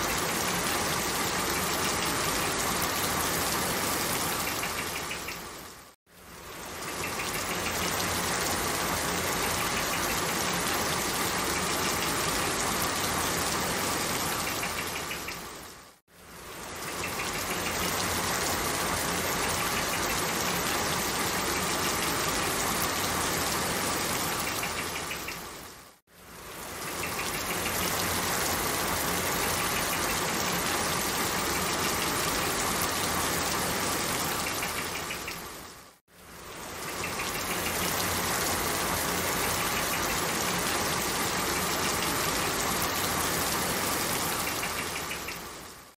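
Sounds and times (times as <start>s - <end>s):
steady rain: 0.0s - 45.9s.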